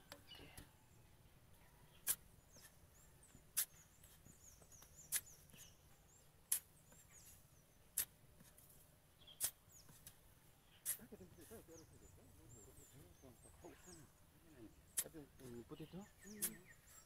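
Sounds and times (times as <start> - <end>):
shovel scraping into sand: 2.0 - 2.8, 3.5 - 5.8, 6.5 - 10.2, 10.8 - 11.7, 16.2 - 17.0.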